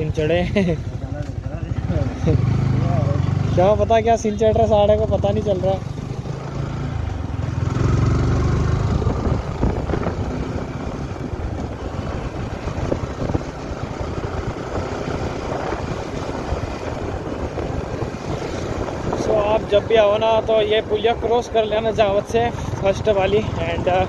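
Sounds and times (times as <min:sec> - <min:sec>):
motorcycle engine accelerating: 0:00.0 - 0:24.0
wind rushing over microphone: 0:06.0 - 0:24.0.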